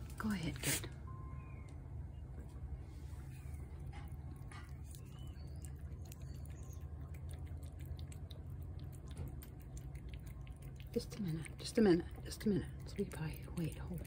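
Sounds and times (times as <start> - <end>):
low steady rumble: 0.0 - 14.0
cat chewing and smacking: 3.4 - 14.0.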